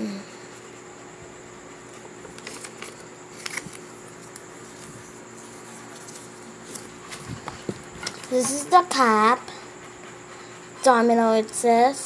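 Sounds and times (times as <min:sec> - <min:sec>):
faint steady hum: 0:00.0 - 0:12.0
paper rustling: 0:02.2 - 0:08.4.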